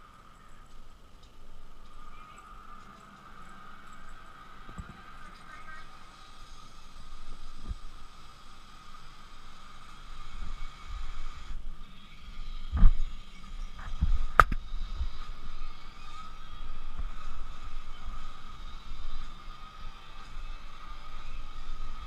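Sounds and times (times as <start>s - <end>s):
low thumps and rustling: 7.6s - 8.0s, 12.7s - 15.2s.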